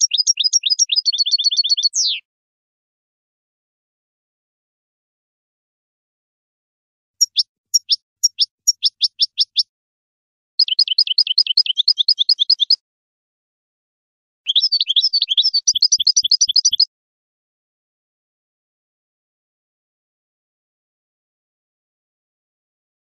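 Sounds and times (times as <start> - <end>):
goldfinch twittering: 7.2 - 9.6, 14.5 - 16.9.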